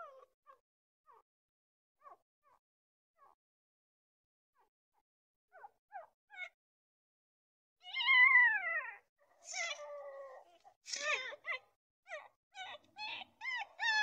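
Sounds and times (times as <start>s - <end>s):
newborn puppy crying: 0.0s - 1.3s, 2.0s - 2.6s, 5.5s - 6.6s, 7.8s - 14.0s.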